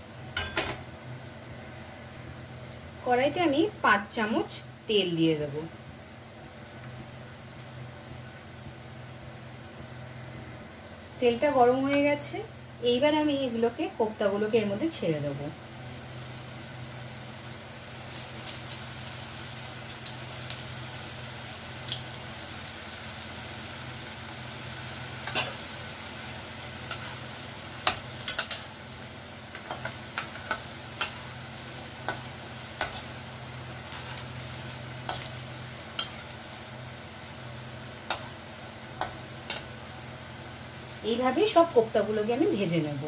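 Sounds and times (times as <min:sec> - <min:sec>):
oil sizzling with pops: 0:06.7 - 0:08.8, 0:15.7 - 0:42.2
spatula stirring in pan: 0:29.5 - 0:36.8.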